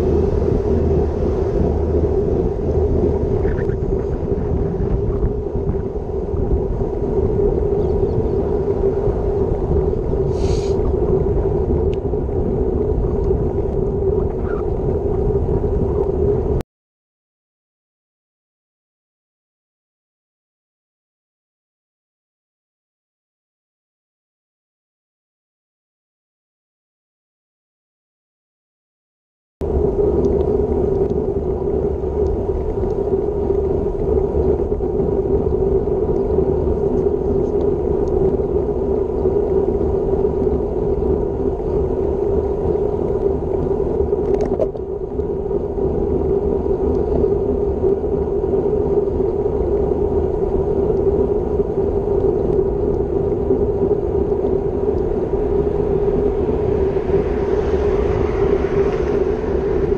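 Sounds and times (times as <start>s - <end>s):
wind rush: 0.0s - 16.6s, 29.6s - 59.9s
passing car hiss: 10.3s - 10.9s, 56.4s - 59.9s
tyre-on-road noise: 49.3s - 59.9s.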